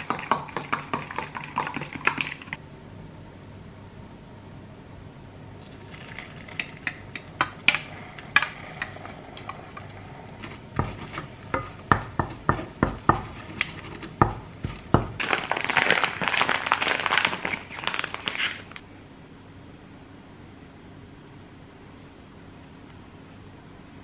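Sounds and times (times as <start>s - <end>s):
eggs sizzling: 0.0s - 2.6s, 5.5s - 18.8s
wooden spoon scraping a pan: 5.7s - 15.2s
plastic bag crinkling: 14.6s - 18.8s.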